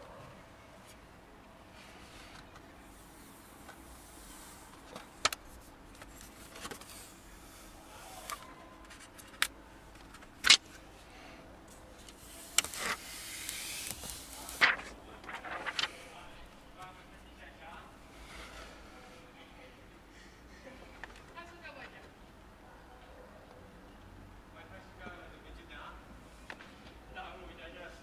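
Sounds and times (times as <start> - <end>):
plastic rustle: 12.0 - 16.6
plastic film crackling: 12.0 - 17.0.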